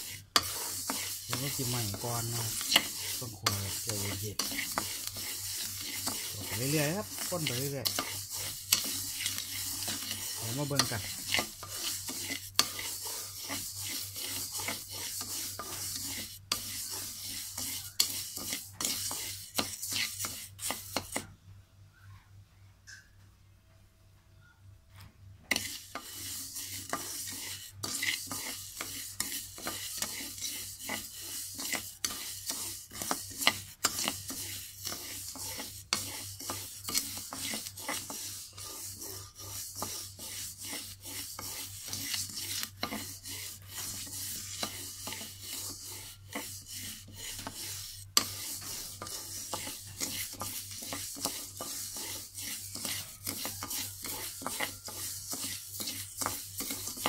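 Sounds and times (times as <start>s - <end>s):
wooden spatula scraping rice in wok: 0.0s - 21.3s, 25.5s - 57.0s.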